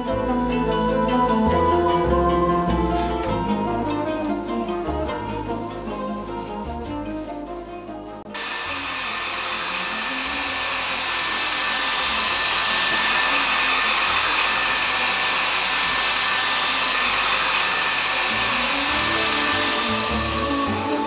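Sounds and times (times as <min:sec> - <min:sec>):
hair dryer running: 0:08.3 - 0:21.0.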